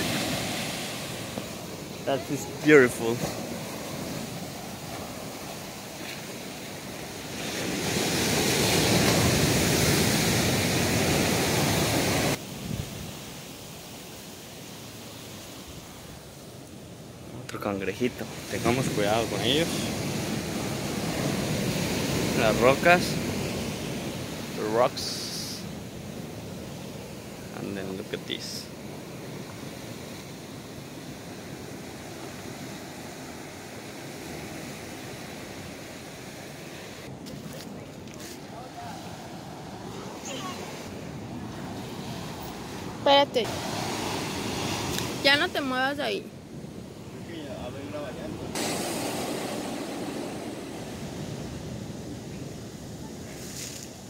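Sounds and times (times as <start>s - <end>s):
ocean wave rushing in: 0.0s - 16.4s, 18.0s - 54.0s.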